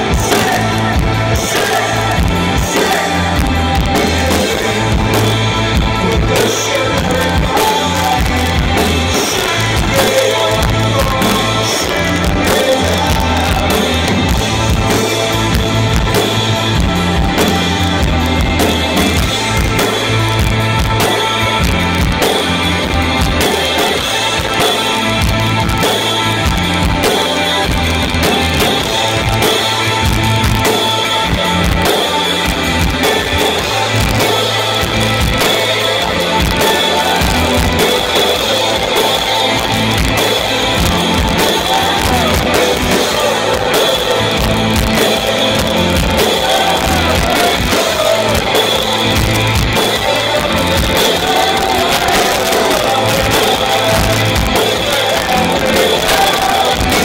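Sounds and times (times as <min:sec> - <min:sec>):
bass guitar: 0:00.0 - 0:57.0
drum kit steady beat: 0:00.0 - 0:57.0
electric guitars: 0:00.0 - 0:57.0.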